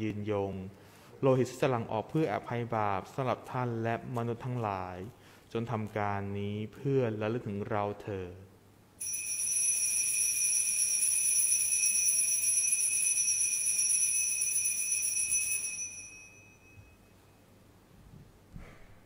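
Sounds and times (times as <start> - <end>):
high bells ringing: 9.0 - 17.2.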